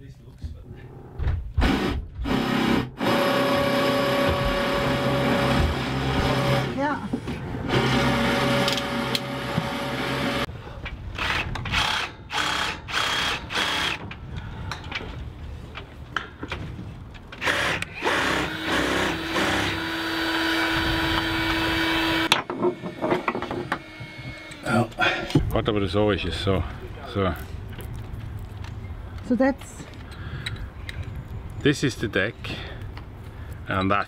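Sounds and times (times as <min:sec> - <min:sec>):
cordless drill whirring: 0:17.4 - 0:24.7.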